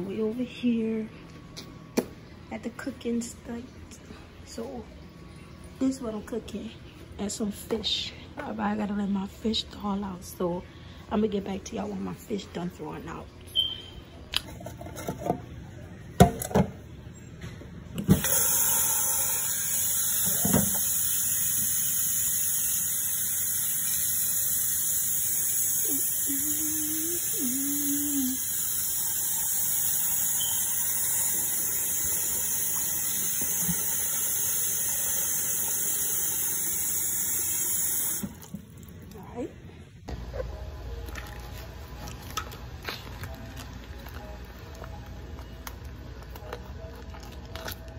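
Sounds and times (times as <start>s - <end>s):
two-note squeak: 13.5s - 14.0s
tap water running into metal pot: 18.1s - 26.4s, 27.0s - 38.7s.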